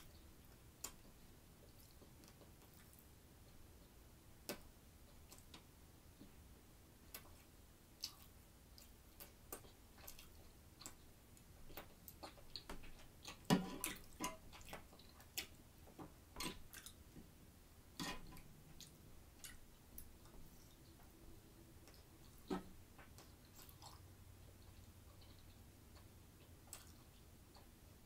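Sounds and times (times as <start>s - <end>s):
chewing clicks and smacks: 7.1s - 15.6s, 16.5s - 17.0s, 21.8s - 27.7s.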